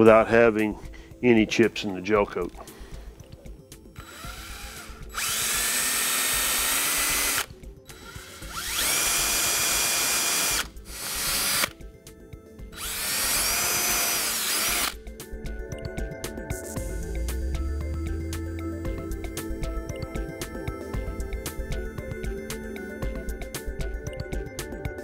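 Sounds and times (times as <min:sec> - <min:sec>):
cordless drill whining: 0:04.0 - 0:11.8, 0:12.7 - 0:15.0.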